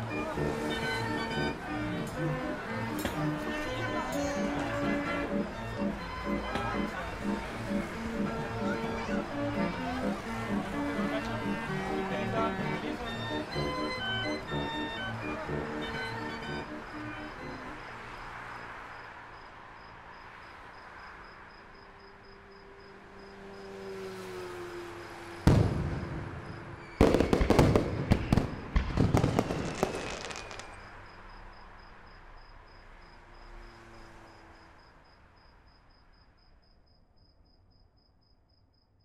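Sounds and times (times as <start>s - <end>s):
crickets chirping: 2.7s - 39.0s
firework bang: 25.4s - 30.8s
firework crackling: 25.4s - 30.8s.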